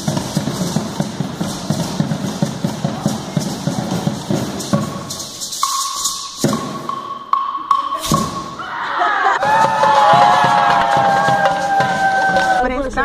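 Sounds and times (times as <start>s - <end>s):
drum and hand percussion hits: 0.0s - 8.6s, 9.4s - 12.7s
steady high held note: 4.7s - 8.6s.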